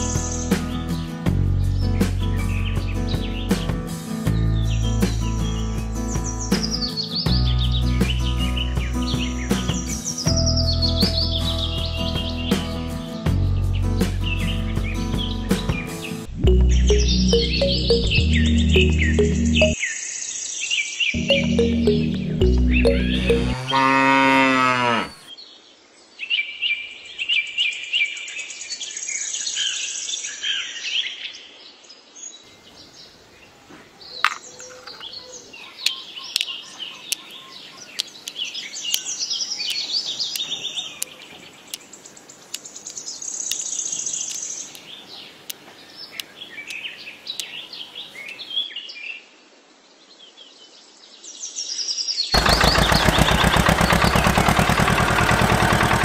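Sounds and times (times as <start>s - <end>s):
birds chirping and singing: 0.0s - 25.4s, 32.3s - 49.0s, 51.4s - 56.0s
loud rhythmic engine: 21.2s - 23.7s, 52.4s - 56.0s
cow mooing: 23.2s - 25.3s.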